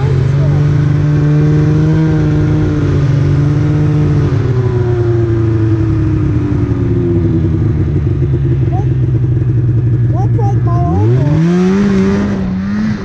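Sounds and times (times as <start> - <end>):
snowmobile engine running: 0.0 - 13.0.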